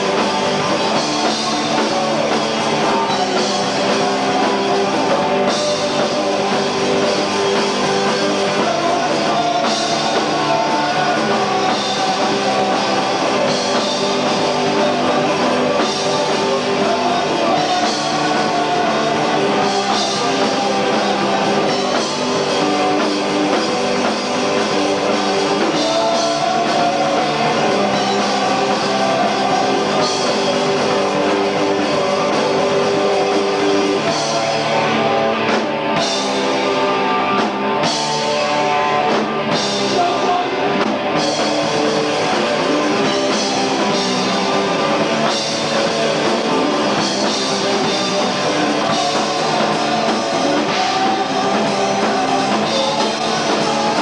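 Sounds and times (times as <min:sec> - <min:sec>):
distorted electric guitar: 0:00.0 - 0:54.0
drum kit: 0:00.0 - 0:54.0
punk band playing live: 0:00.0 - 0:54.0.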